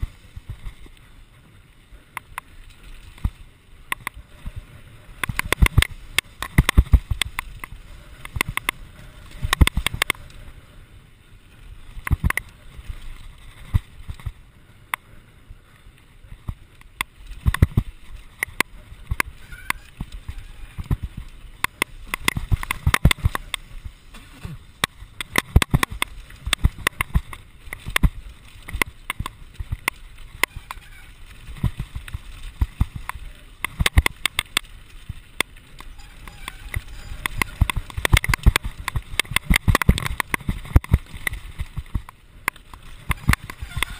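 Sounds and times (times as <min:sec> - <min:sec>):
wind and tyre noise: 0:00.0 - 0:43.9
mountain bike knocks and rattles: 0:05.2 - 0:08.8, 0:17.4 - 0:34.8, 0:35.4 - 0:43.9.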